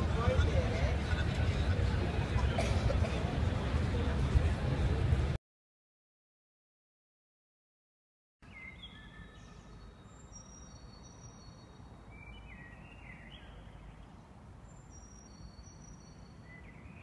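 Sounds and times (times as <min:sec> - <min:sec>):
songbirds singing: 0:08.4 - 0:17.0.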